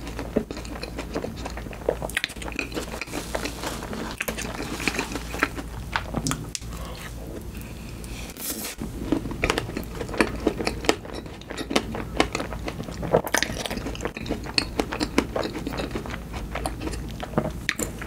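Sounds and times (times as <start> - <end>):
person chewing wet mouth clicks: 9.5 - 17.1.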